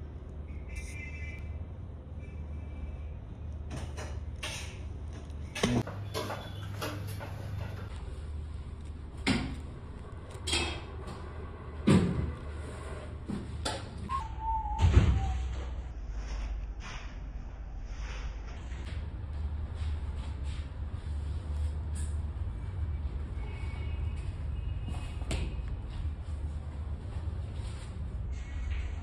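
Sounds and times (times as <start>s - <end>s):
brief squeak: 14.1s - 15.7s.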